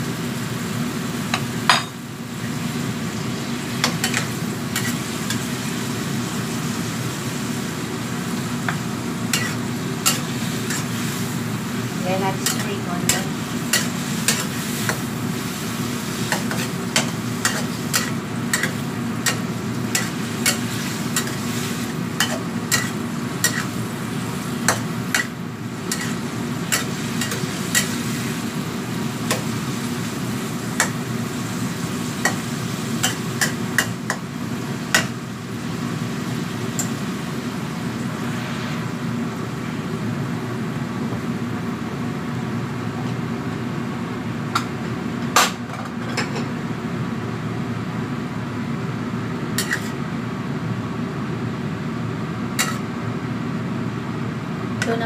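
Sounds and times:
vegetables sizzling in oil: 0.0 - 41.5, 49.4 - 50.0
steady low hum: 0.8 - 45.2.

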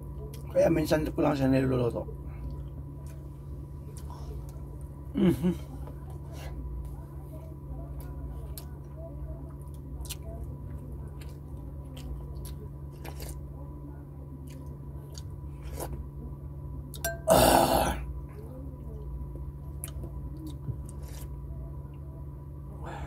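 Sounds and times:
person chewing with wet clicks: 2.4 - 4.7, 7.9 - 13.5, 14.3 - 16.0, 18.8 - 22.0.

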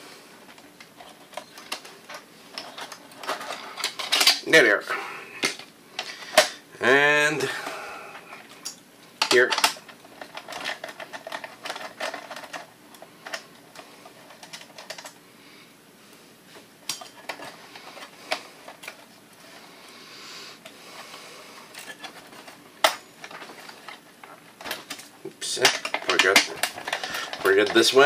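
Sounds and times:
sheet-metal parts handled: 0.5 - 4.5, 8.6 - 15.2, 16.8 - 19.1, 21.7 - 28.0.

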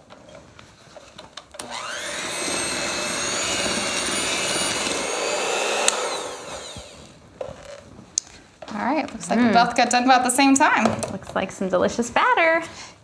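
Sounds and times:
electric hand mixer whine: 1.6 - 7.2.

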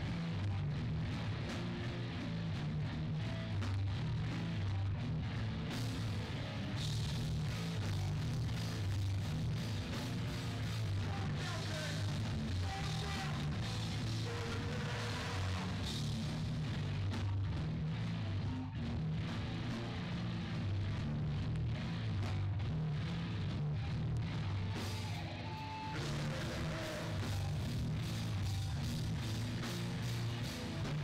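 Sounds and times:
bass chugging: 0.0 - 31.0
distorted electric guitars: 0.0 - 31.0.

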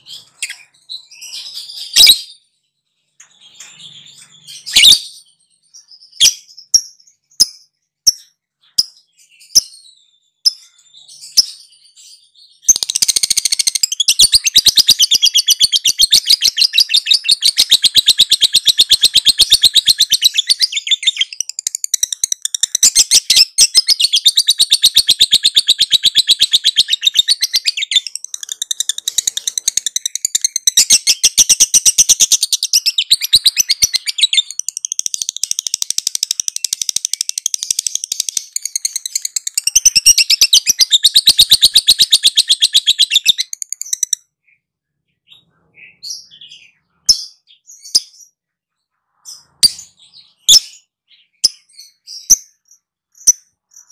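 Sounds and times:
bird rattling chatter song: 12.7 - 44.2.

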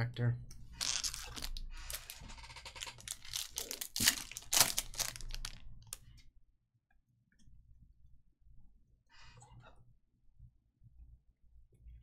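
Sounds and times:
wrapper ripping: 0.8 - 2.2, 2.8 - 6.0
wrapper crinkling: 0.8 - 6.1.

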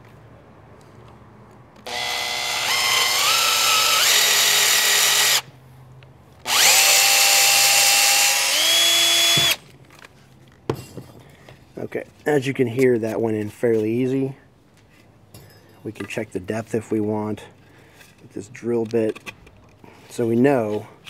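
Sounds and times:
cordless drill boring into wood: 1.8 - 5.5, 6.4 - 9.6.

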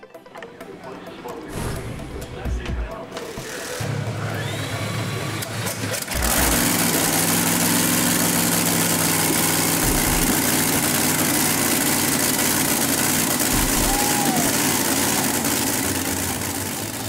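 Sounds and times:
boat engine idling loudly: 3.6 - 17.0.

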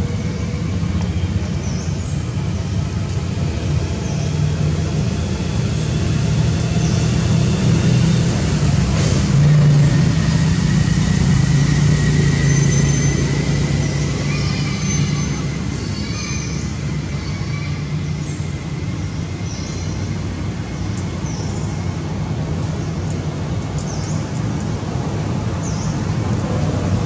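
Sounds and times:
low engine hum: 0.0 - 27.0.

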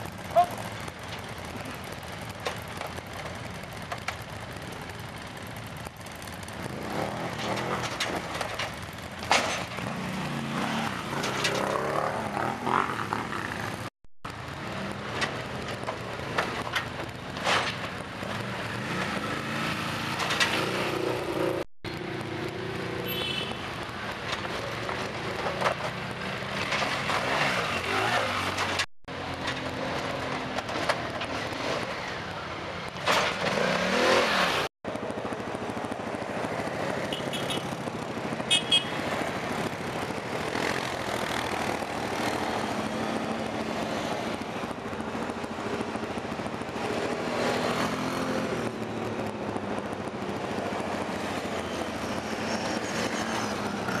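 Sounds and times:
quad bike engines revving: 0.0 - 54.0.

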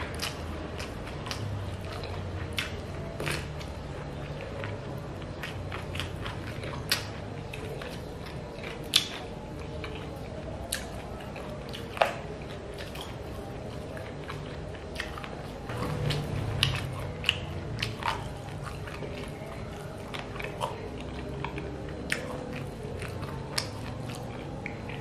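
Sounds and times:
sharp snaps of biting: 0.0 - 3.7, 5.4 - 10.0, 15.0 - 19.3, 20.1 - 25.0
chewing and biting: 0.0 - 25.0.

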